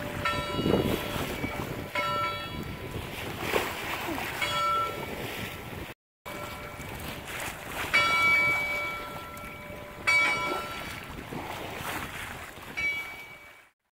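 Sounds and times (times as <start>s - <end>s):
bell clanging and ringing: 0.0s - 2.9s, 4.4s - 5.3s, 7.9s - 11.0s, 12.8s - 13.6s
wind: 0.0s - 13.8s.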